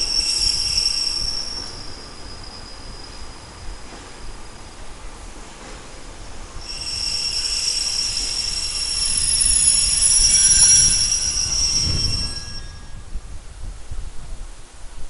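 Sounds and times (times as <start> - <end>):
train wheels squealing: 0.0 - 5.0, 6.6 - 13.2
low train rumble: 0.0 - 15.0.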